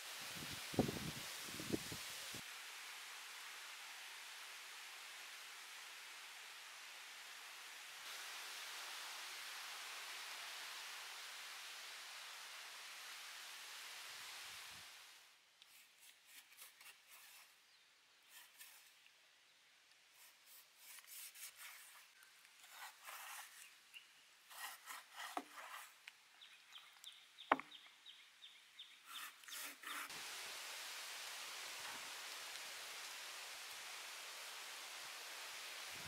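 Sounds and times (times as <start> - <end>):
steady hiss: 0.0 - 36.0
knife rasping through meat: 24.5 - 25.9.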